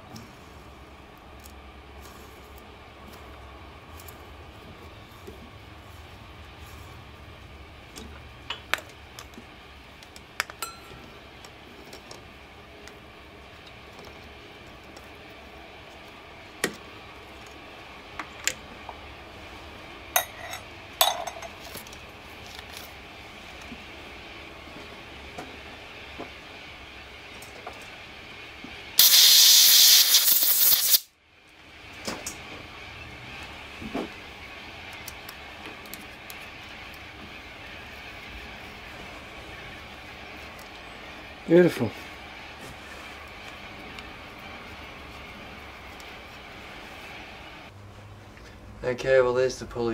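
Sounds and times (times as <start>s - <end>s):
low steady hum: 0.0s - 29.0s
compressed air blow gun hissing: 29.0s - 31.1s.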